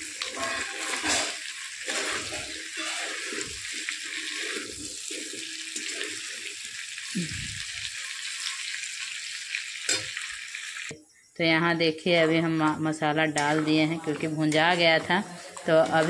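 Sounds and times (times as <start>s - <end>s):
metal spatula scraping a pan: 0.0s - 6.7s, 12.1s - 16.0s
chicken sizzling in a pan: 0.0s - 10.9s, 12.2s - 16.0s.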